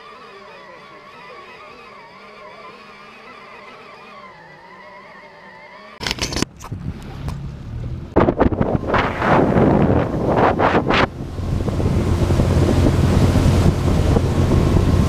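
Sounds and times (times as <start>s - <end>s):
outboard motor running: 0.0s - 15.0s
wind buffeting microphone: 6.5s - 15.0s.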